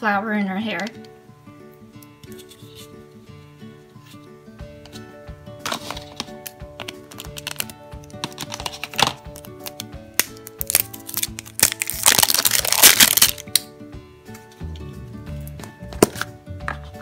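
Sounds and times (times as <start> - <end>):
background music with held notes: 0.0 - 17.0
plastic wrapping crinkling: 5.6 - 13.7.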